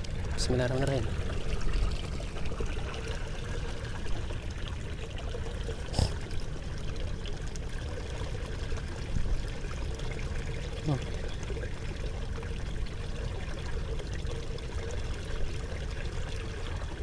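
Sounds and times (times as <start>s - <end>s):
water trickling: 0.0s - 17.0s.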